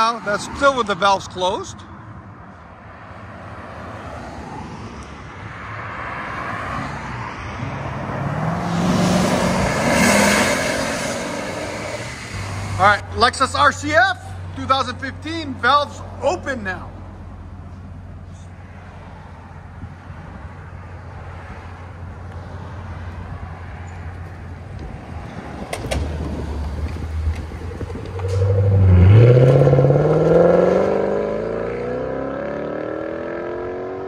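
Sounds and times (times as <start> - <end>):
car accelerating hard: 8.0 - 12.8, 27.5 - 34.0.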